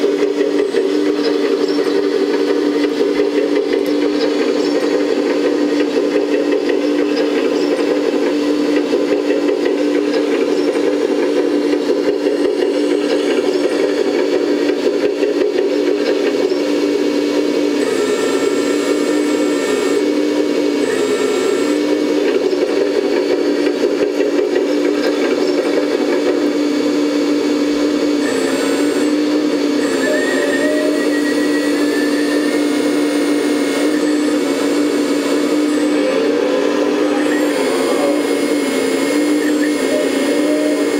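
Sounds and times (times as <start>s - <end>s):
hydraulic pump motor whirring: 0.0s - 40.9s
faint high whines: 26.9s - 40.9s.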